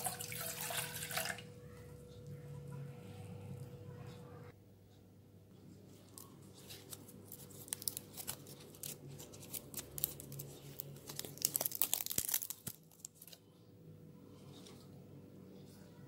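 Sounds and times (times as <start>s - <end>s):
leaves crackling and tearing: 6.1s - 13.4s.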